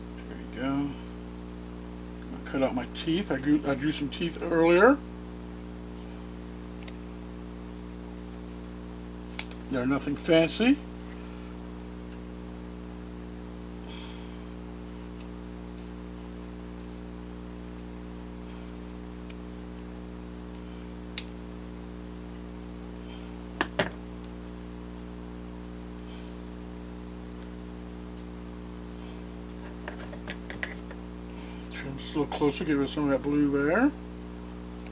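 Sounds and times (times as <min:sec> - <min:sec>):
low electrical hum: 0:00.0 - 0:34.9.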